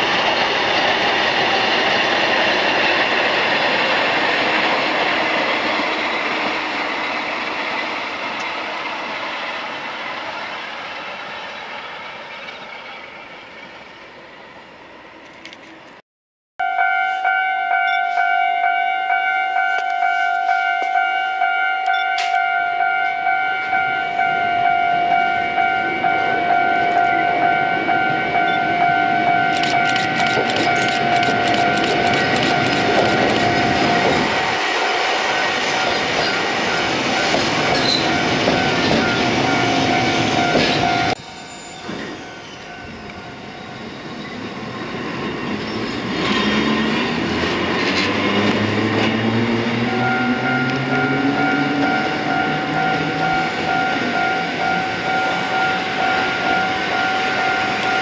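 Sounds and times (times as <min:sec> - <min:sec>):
railcar motors whining: 0:00.0 - 0:16.0, 0:23.0 - 0:58.0
two-tone level-crossing bell: 0:16.6 - 0:34.2, 0:49.7 - 0:58.0.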